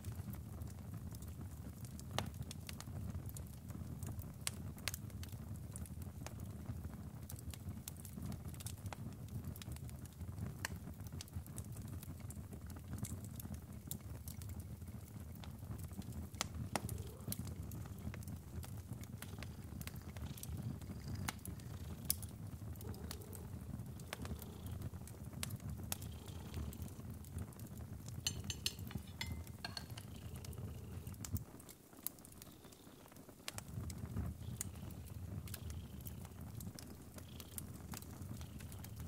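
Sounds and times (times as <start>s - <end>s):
wood fire crackling: 0.0s - 39.0s
low rush of fire: 10.3s - 39.0s.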